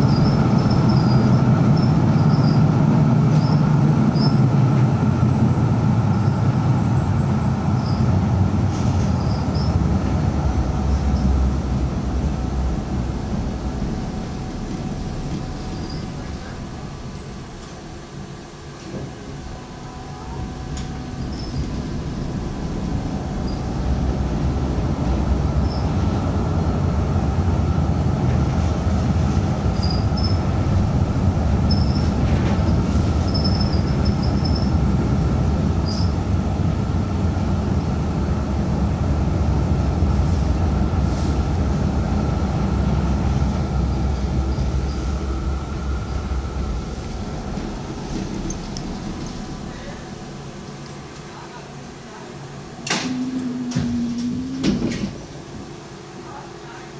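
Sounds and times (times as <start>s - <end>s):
tram rumbling on rails: 0.0s - 56.9s
faint steady whine: 33.1s - 56.9s.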